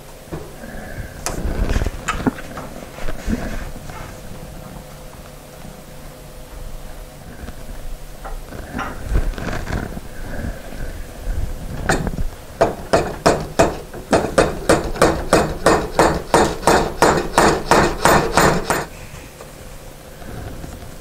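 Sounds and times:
hammer tapping wooden wedges: 0:12.6 - 0:18.9.

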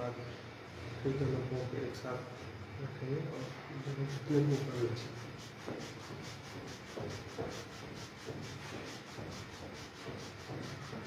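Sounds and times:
feet rubbing on a rug: 0:03.3 - 0:11.0.

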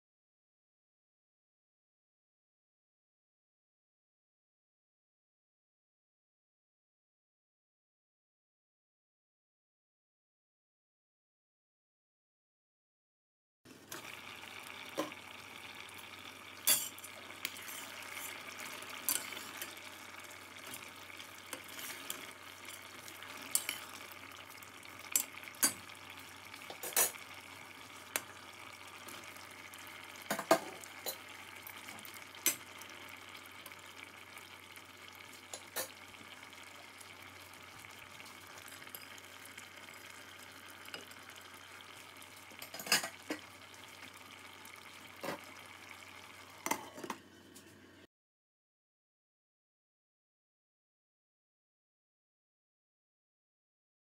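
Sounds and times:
curry sizzling in a pot: 0:13.7 - 0:48.1.

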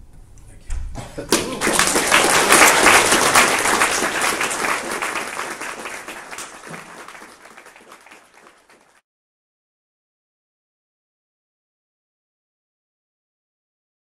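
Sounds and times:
audience applauding: 0:01.3 - 0:09.0.

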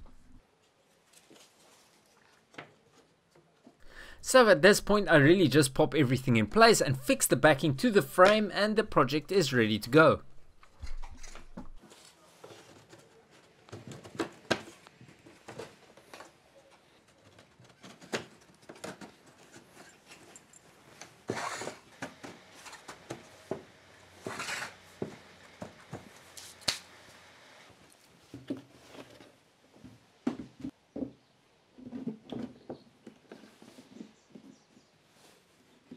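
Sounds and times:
wood scraping rub: 0:24.1 - 0:26.6.

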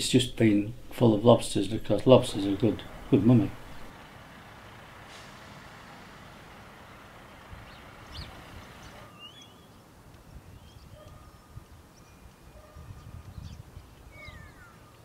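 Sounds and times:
steady background hiss: 0:00.0 - 0:10.6
bird chirps: 0:07.3 - 0:15.0.

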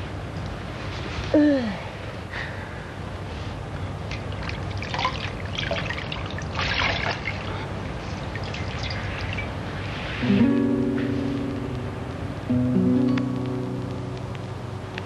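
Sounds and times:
low steady hum: 0:00.0 - 0:15.0
water splashing in a basin: 0:04.1 - 0:09.9.

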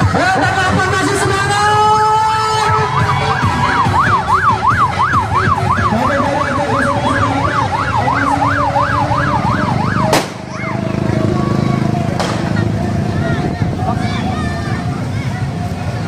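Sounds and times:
street crowd hubbub: 0:00.0 - 0:16.0
electronic siren yelping: 0:02.2 - 0:10.7.

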